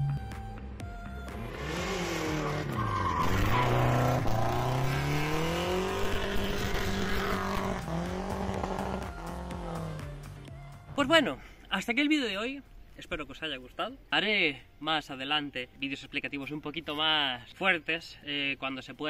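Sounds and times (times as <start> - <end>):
car engine revving hard: 1.4 - 10.0
tyres spinning and squealing: 1.8 - 8.4.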